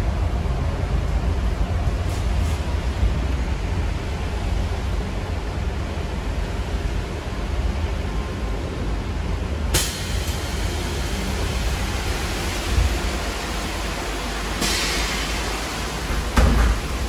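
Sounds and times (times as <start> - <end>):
bus ride rumble: 0.0 - 17.0
bus hiss: 9.7 - 16.3.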